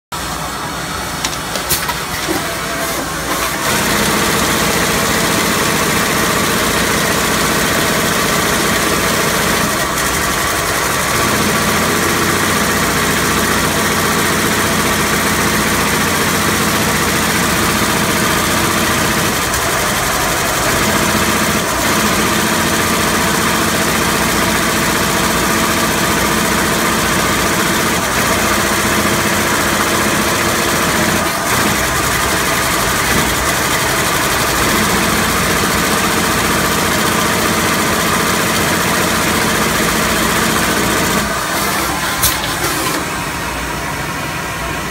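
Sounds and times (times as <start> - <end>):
loud mechanical whir: 0.2 - 44.9
machine clicks: 1.2 - 3.8.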